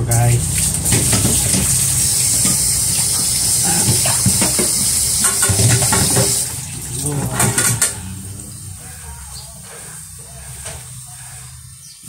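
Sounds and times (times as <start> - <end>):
tap water running onto colander: 0.0 - 8.2
colander knocking: 0.8 - 8.0.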